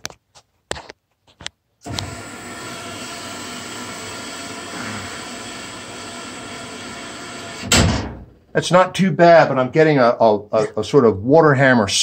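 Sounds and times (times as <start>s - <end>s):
water rushing into boiler: 1.9s - 7.7s.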